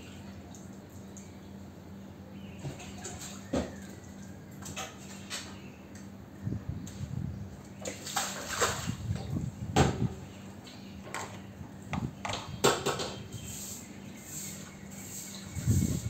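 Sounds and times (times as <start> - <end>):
water sloshing on tiled floor: 2.7 - 5.6, 6.8 - 9.6
push broom scrubbing wet tiles: 13.4 - 16.0.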